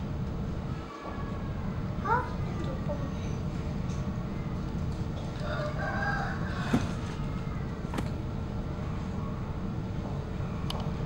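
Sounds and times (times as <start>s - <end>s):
steady low rumble: 0.0s - 11.0s
rooster crowing: 5.4s - 7.6s.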